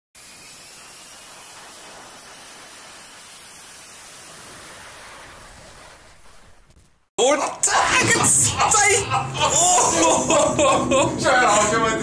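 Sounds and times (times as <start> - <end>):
jet engine roaring: 0.2 - 6.8.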